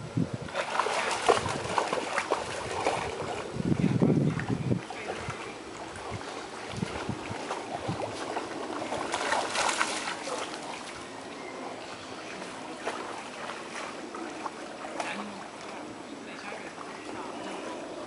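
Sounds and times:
dogs splashing through water: 0:00.5 - 0:18.0.

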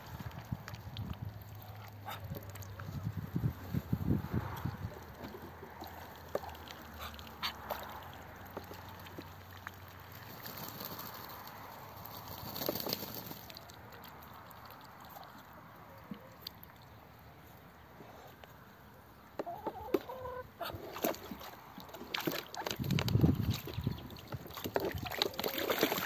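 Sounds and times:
water sloshing and splashing: 0:04.4 - 0:15.5, 0:19.8 - 0:26.0.

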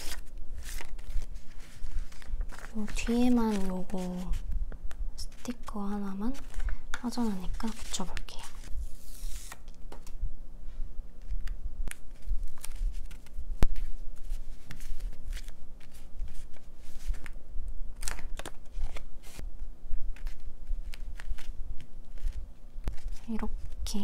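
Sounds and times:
paper and sticker rustling: 0:00.0 - 0:04.5, 0:05.2 - 0:10.0, 0:11.2 - 0:17.4, 0:18.0 - 0:19.4.

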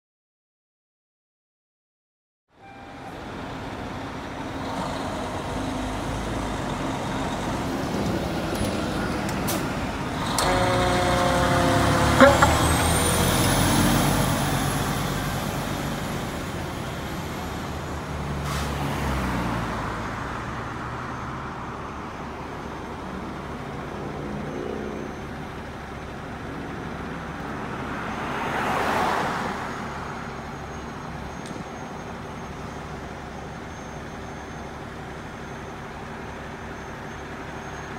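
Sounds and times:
diesel truck engines running: 0:03.1 - 0:37.9
pitched warning tone: 0:10.3 - 0:13.2.

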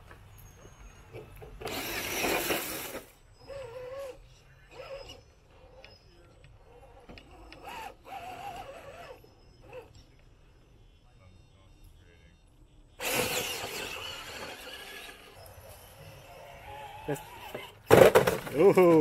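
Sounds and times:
motor whirring: 0:06.6 - 0:10.0, 0:13.0 - 0:17.9
tires churning loose dirt: 0:13.0 - 0:19.0.

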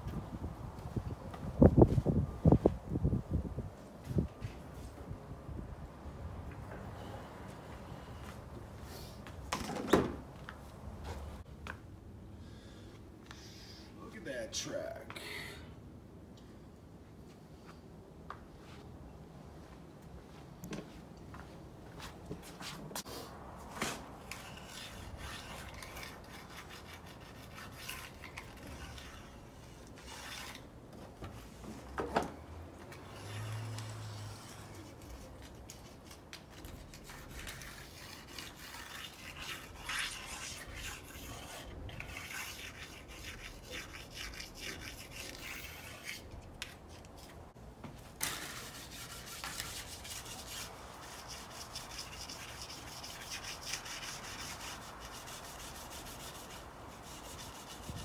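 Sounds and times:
tool filing metal track: 0:24.3 - 0:30.7, 0:36.9 - 0:46.4.

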